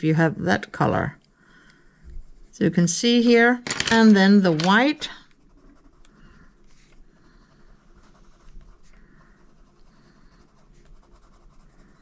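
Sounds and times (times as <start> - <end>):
pencil scratching on paper: 2.1 - 12.0.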